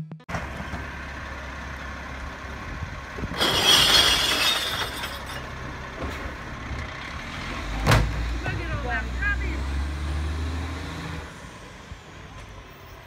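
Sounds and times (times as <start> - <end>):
diesel truck engine idling: 0.3 - 3.4, 5.0 - 9.8
glass bottles crashing: 3.4 - 5.4.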